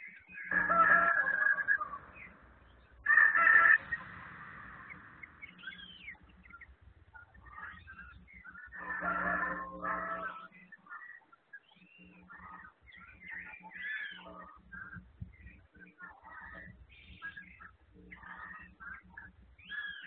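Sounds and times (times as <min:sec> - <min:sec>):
chickens calling: 0:00.0 - 0:20.0
small bird chirps: 0:04.8 - 0:20.0.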